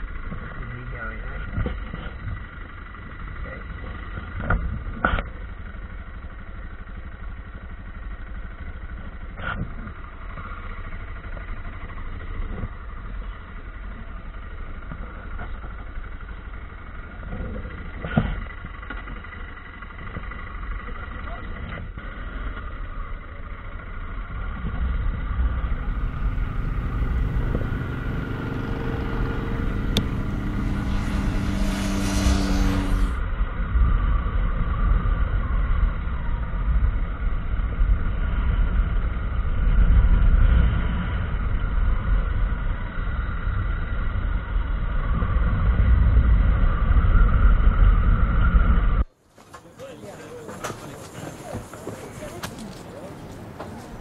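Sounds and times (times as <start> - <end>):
motorcycle engine drone: 0.0 - 54.0
wind rushing over microphone: 24.6 - 49.1.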